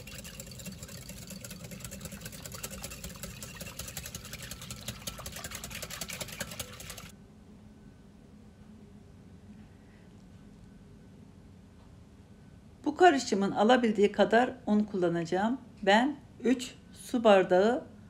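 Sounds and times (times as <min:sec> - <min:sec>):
whisk clattering in glass bowl: 0:00.0 - 0:07.1.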